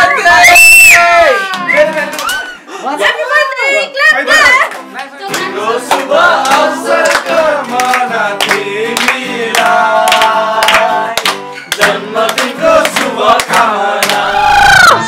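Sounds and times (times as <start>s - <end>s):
acoustic guitar: 0.0s - 15.0s
hand claps: 4.4s - 14.4s
men singing together: 5.4s - 15.0s.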